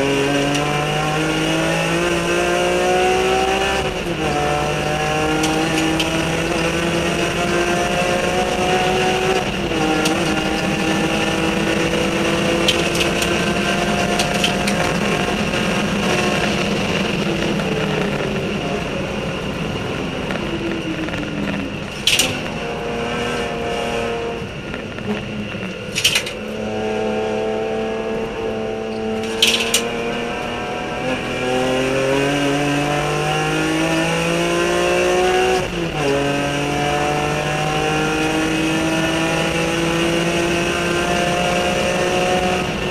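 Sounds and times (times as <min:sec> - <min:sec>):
race car engine at high revs: 0:00.0 - 0:42.9.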